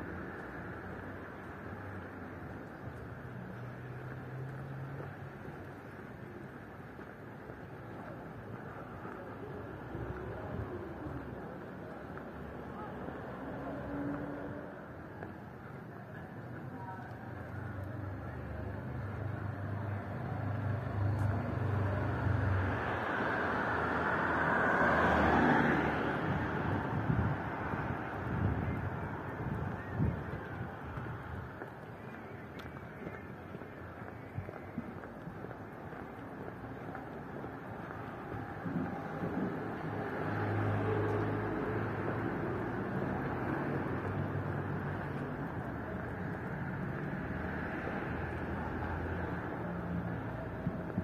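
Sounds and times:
road noise: 0:00.0 - 0:51.0
vehicle passing: 0:18.0 - 0:31.6, 0:32.4 - 0:51.0.

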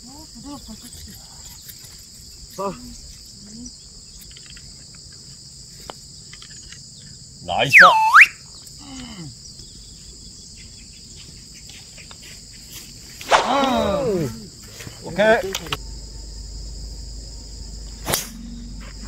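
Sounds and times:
insects chirring: 0:00.0 - 0:19.0
person exclaiming: 0:13.3 - 0:14.5.

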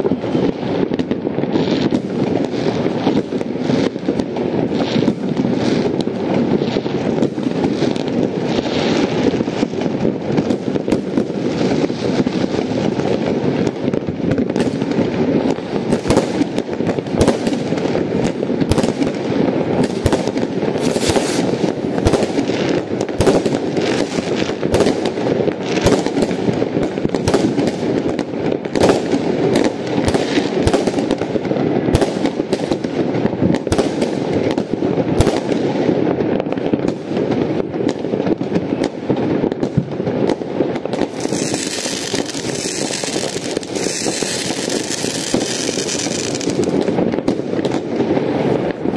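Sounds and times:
distant fireworks bangs and crackling: 0:00.0 - 0:48.9
rocket launching hiss: 0:41.1 - 0:47.0.

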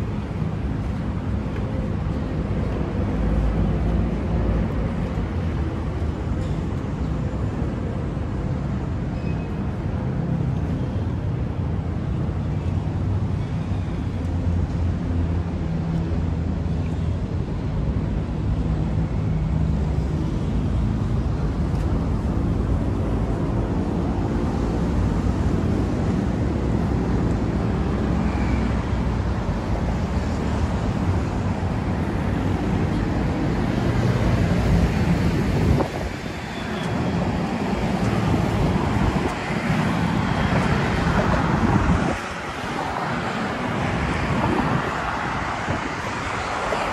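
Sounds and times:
wind-like rushing noise: 0:00.0 - 0:13.4, 0:14.4 - 0:46.9.

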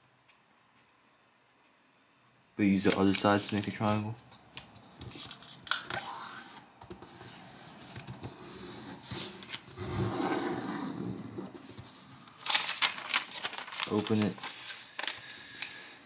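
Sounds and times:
paper crackle: 0:02.8 - 0:04.1, 0:11.8 - 0:15.8
paper rustling and rubbing: 0:11.6 - 0:15.8.

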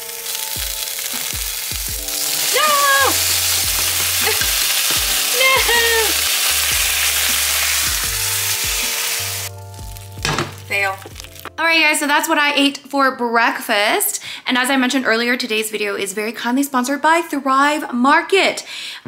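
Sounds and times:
food sizzling in frying pan: 0:00.0 - 0:11.5
background music with beat: 0:00.0 - 0:11.6.

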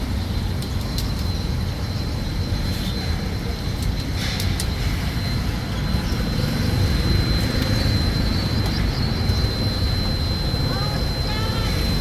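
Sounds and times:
street traffic rumble: 0:00.0 - 0:12.0
thin high tone: 0:04.8 - 0:12.0.

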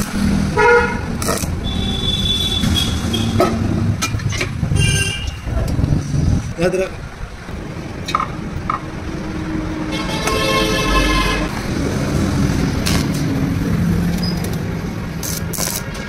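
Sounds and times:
background traffic noise: 0:00.0 - 0:16.0
vehicle horn: 0:00.6 - 0:03.4, 0:04.7 - 0:05.5, 0:09.9 - 0:11.5.

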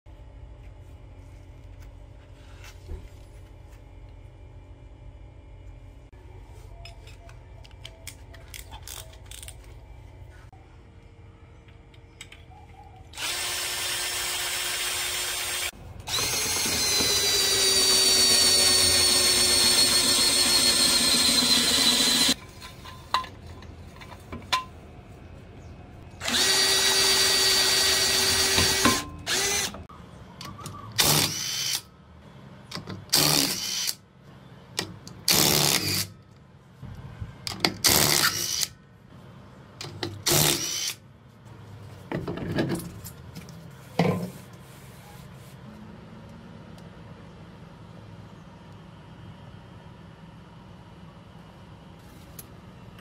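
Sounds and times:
power drill running: 0:13.2 - 0:22.4, 0:26.2 - 0:29.9.

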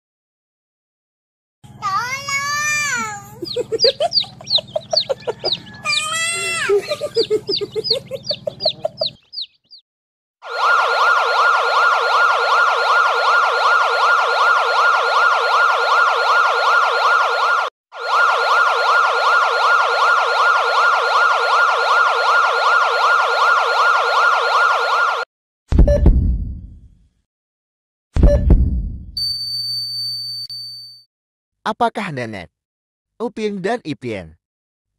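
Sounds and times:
ambulance siren warbling: 0:03.4 - 0:09.2, 0:10.4 - 0:25.3
chicken clucking and squawking: 0:03.4 - 0:09.6.

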